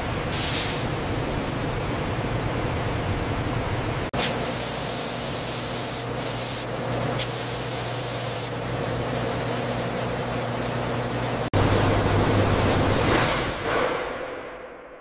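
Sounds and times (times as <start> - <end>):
machinery hum: 0.0 - 14.2
spray-like hiss: 0.3 - 1.8, 4.5 - 8.5.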